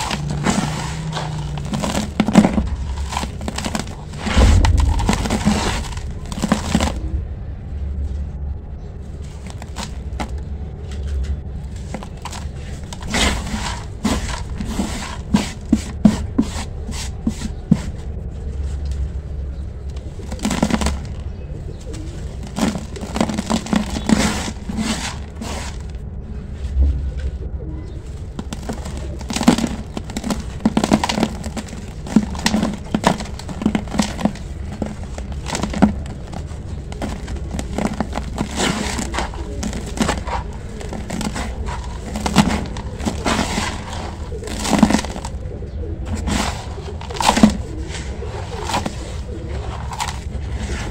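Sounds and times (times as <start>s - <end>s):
crumbly chunks crushed between hands: 0.0s - 7.4s, 9.1s - 18.0s, 19.8s - 26.1s, 28.1s - 50.9s
steady low rumble: 0.0s - 12.9s, 25.8s - 44.5s.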